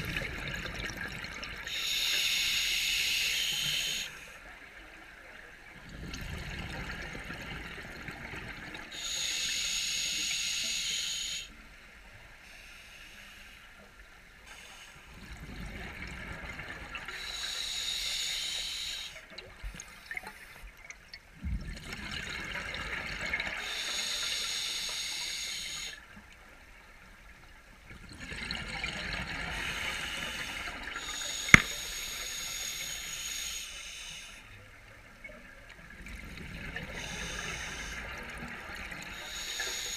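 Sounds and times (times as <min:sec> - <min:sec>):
diver breathing through regulator: 0:01.7 - 0:04.3, 0:09.0 - 0:11.5, 0:29.5 - 0:34.5, 0:36.9 - 0:38.2, 0:39.1 - 0:39.9
sharp click: 0:31.6 - 0:31.8.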